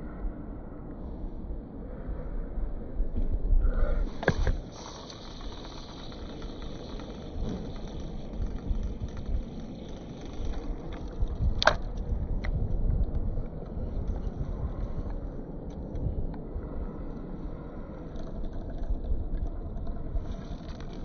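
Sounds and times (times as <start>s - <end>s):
low rumbling noise: 0.0s - 21.0s
fishing reel clicks: 4.7s - 11.8s.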